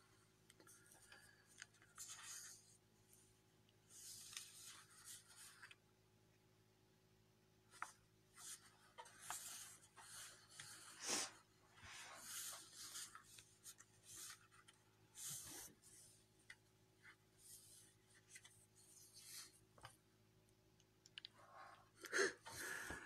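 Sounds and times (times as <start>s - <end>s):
faint rustling and rubbing: 0.0s - 5.8s, 7.7s - 20.0s.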